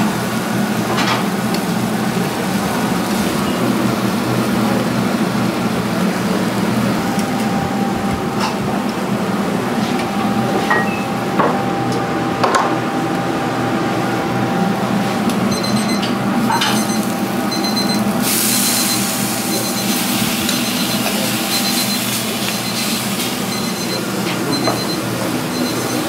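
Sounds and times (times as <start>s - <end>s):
machine hum: 0.0s - 26.0s
short high electronic beeps: 15.5s - 22.8s.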